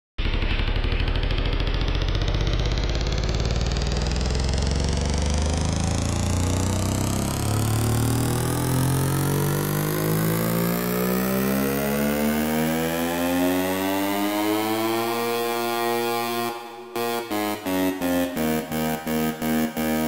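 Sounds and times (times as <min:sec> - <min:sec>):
buzzy synthesizer riser: 0:00.2 - 0:20.0.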